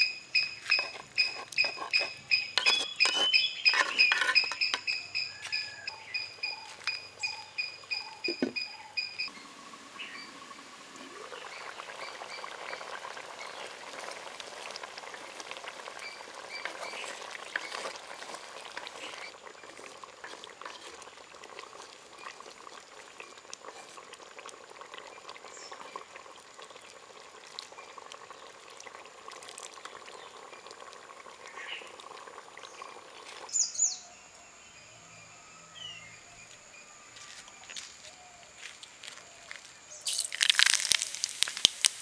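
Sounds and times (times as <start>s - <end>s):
wooden spoon stirring: 0.4s - 5.9s, 14.0s - 22.8s
curry bubbling and popping: 10.4s - 33.5s, 40.0s - 42.0s.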